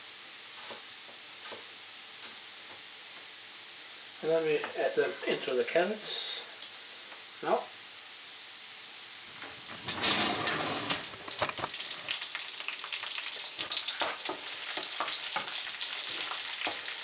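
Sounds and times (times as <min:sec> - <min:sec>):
vegetables sizzling in hot oil: 0:00.0 - 0:05.4, 0:06.5 - 0:17.0
wooden spatula scraping a pan: 0:09.6 - 0:11.8.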